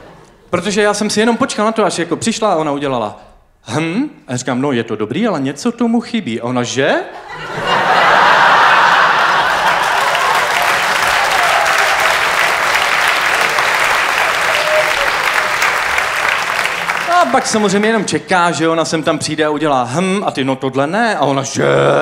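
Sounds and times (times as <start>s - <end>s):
audience applauding: 7.8s - 18.1s.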